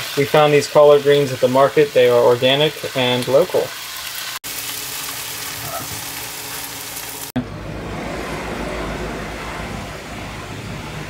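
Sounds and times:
greens sizzling in a pan: 0.0 - 7.3.

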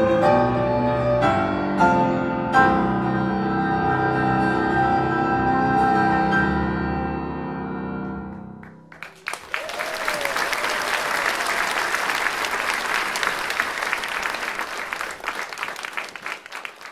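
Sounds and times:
audience applause: 8.9 - 16.9.

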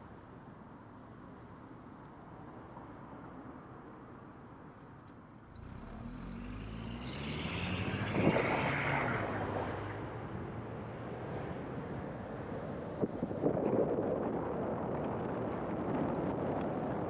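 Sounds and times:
vehicle passing by: 5.5 - 10.2.

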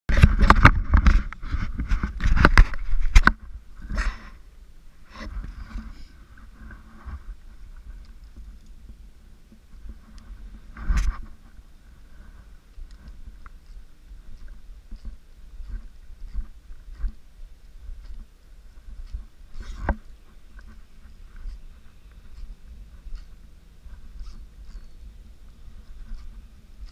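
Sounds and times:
low steady rumble: 0.8 - 26.9
gear knocking and scraping in boat: 5.1 - 17.2.

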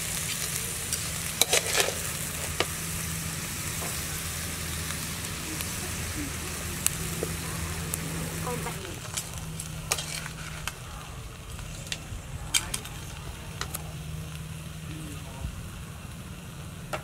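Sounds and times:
crabs sizzling in a wok: 0.0 - 17.0
metal ladle scraping a pan: 0.3 - 2.6, 9.0 - 10.8.

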